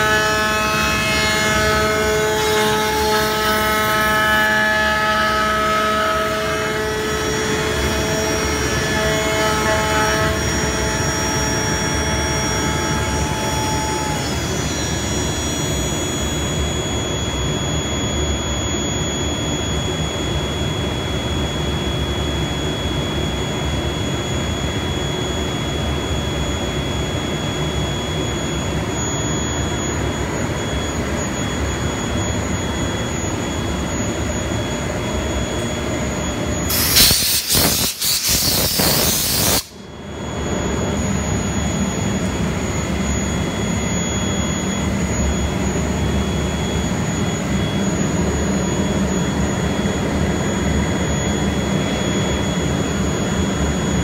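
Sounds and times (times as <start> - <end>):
router spindle whining: 0.0 - 17.1.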